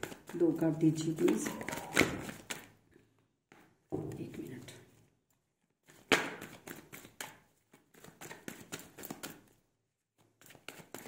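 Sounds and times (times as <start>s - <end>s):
cards being shuffled: 0.0s - 2.8s, 5.3s - 11.0s.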